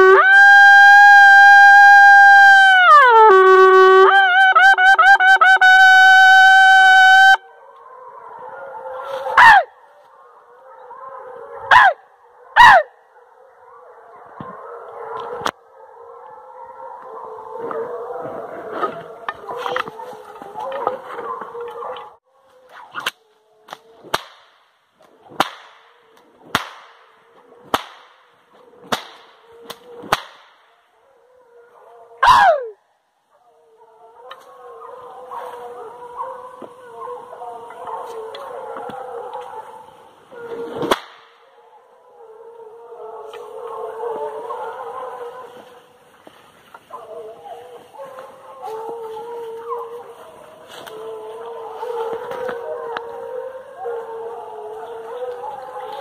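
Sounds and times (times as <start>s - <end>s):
hunting horn blowing: 0.0s - 7.5s
hounds barking: 5.2s - 24.0s, 27.0s - 27.8s, 28.4s - 56.0s
faint dogs baying: 7.4s - 24.1s, 30.8s - 40.8s, 41.4s - 56.0s
dog yelping: 9.1s - 9.7s, 10.7s - 12.0s, 12.6s - 12.9s, 32.2s - 32.8s.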